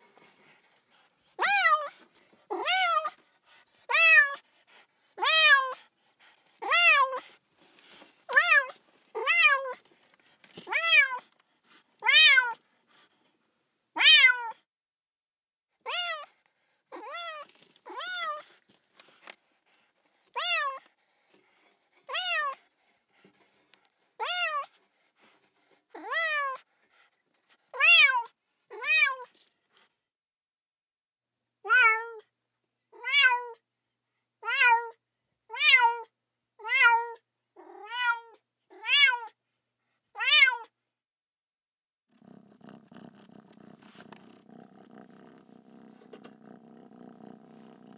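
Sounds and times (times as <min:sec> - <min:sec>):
kitten meowing: 0:12.0 - 0:12.6, 0:14.0 - 0:14.6, 0:15.9 - 0:16.3.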